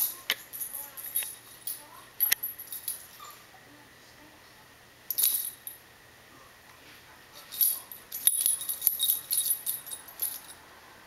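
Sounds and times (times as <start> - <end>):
collar tag jingling: 0.0 - 3.4, 5.1 - 5.8, 7.4 - 10.6.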